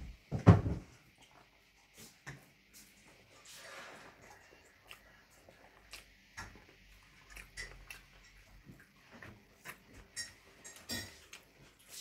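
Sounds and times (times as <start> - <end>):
person chewing and smacking lips: 4.2 - 12.0.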